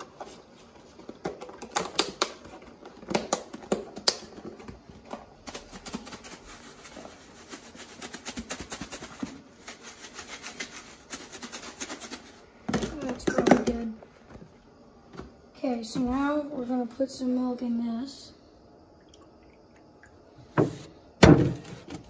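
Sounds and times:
breadcrumbs rattling in shaken container: 5.3s - 12.3s.

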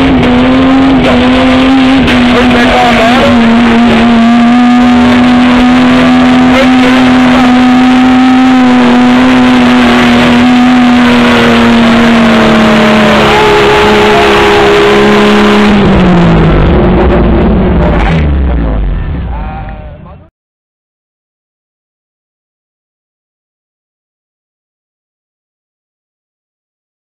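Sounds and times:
engine revving under load: 0.0s - 19.8s.

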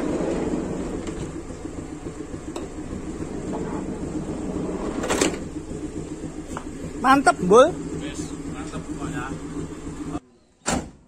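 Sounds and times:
sliding door moving: 0.0s - 6.8s
car engine running: 0.0s - 10.2s.

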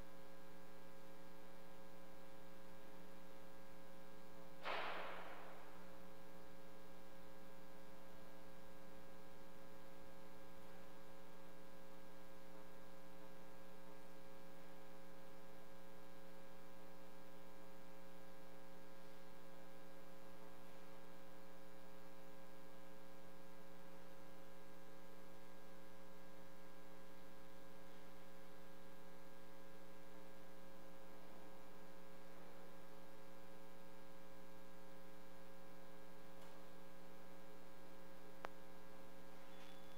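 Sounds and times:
electrical hum: 0.0s - 39.9s.

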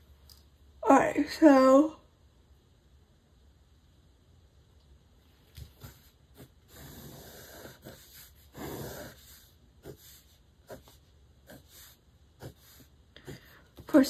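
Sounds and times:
pencil scratching on paper: 5.7s - 14.0s.

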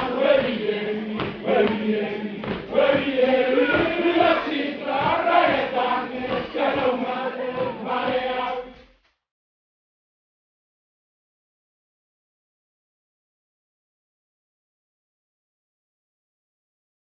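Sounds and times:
rhythmic beat: 0.0s - 8.8s
men chanting and singing: 0.0s - 8.9s.

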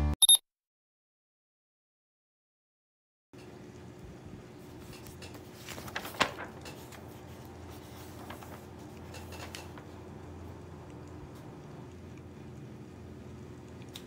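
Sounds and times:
low room hum: 3.4s - 14.0s
book pages turning: 4.6s - 9.9s.

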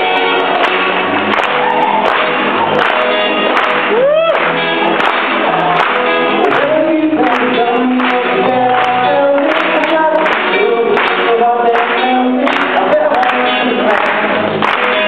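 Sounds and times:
backing music with steady beat: 0.0s - 15.0s
man singing into microphone: 6.4s - 15.0s.

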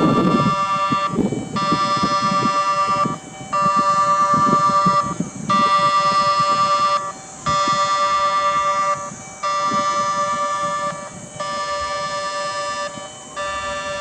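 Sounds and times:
railway crossing warning alarm: 0.0s - 14.0s.

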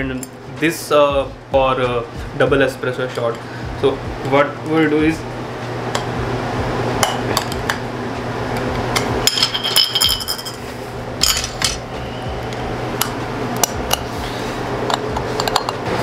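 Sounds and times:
metal filter baskets clinking: 9.2s - 10.6s.

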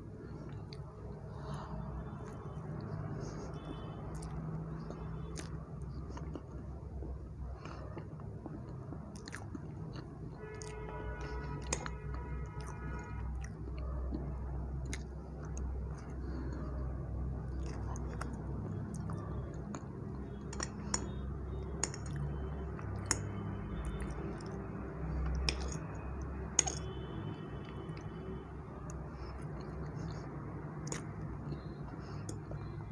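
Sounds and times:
chewing soft cake: 0.0s - 32.9s.

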